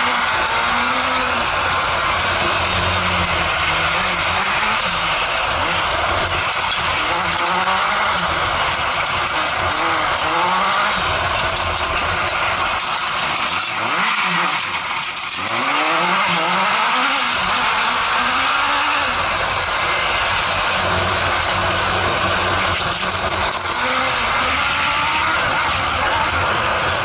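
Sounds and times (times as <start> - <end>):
constant rushing noise: 0.0 - 27.0
motorcycle engine revving: 0.0 - 27.0.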